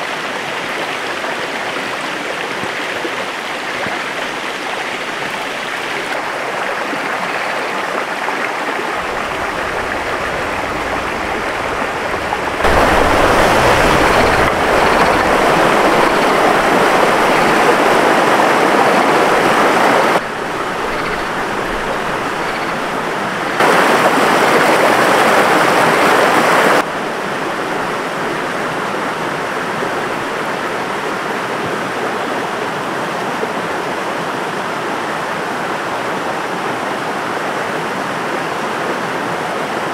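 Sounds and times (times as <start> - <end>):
stream water rushing: 0.0 - 39.9.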